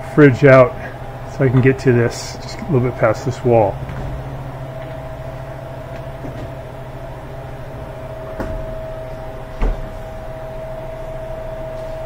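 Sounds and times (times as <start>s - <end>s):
refrigerator humming: 0.0s - 12.0s
cabinet thumps: 3.8s - 4.4s.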